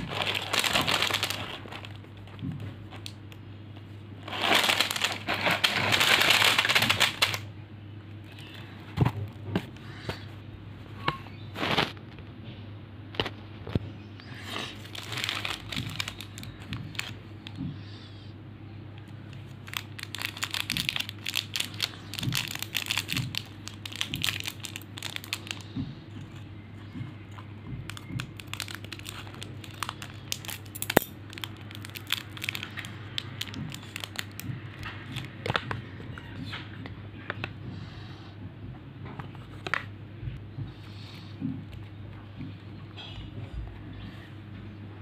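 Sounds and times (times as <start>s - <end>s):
wrapper torn open: 0.0s - 2.0s, 4.2s - 7.4s, 14.8s - 17.2s, 19.6s - 25.6s, 27.9s - 34.5s
plastic wrappers crinkling: 0.0s - 3.3s, 4.2s - 7.5s, 14.5s - 17.6s, 19.3s - 35.8s
steady low hum: 0.0s - 45.0s.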